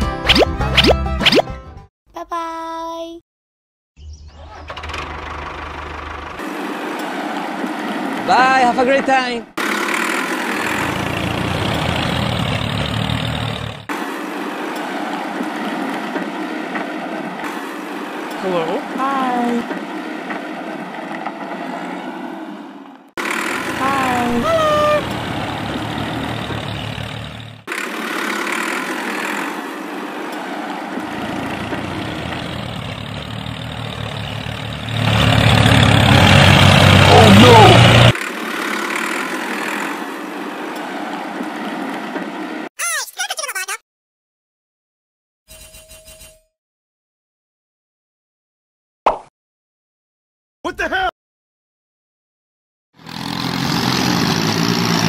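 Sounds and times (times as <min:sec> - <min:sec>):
tractor engine rumbling: 0:04.2 - 0:42.6.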